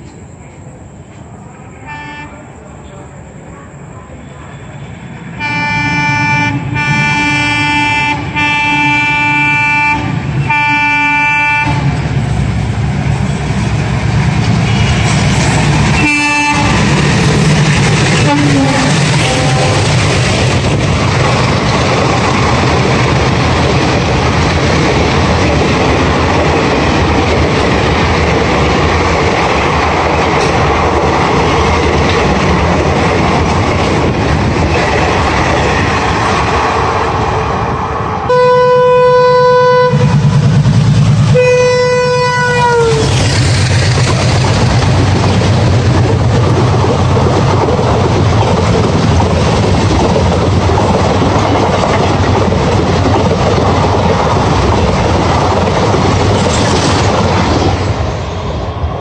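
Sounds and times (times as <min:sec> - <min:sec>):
locomotive horn blasts: 0:05.4 - 0:11.9, 0:16.0 - 0:16.8, 0:18.2 - 0:19.8, 0:38.3 - 0:40.2, 0:41.3 - 0:43.1
train wheels clattering over rail joints: 0:43.1 - 0:58.0.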